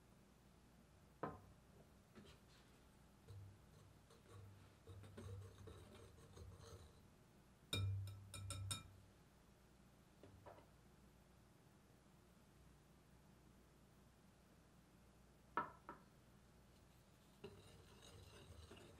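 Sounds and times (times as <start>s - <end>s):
whisk scuffing through flour: 2.2s - 7.0s, 16.8s - 18.9s
whisk clicking against glass bowl: 7.8s - 9.0s.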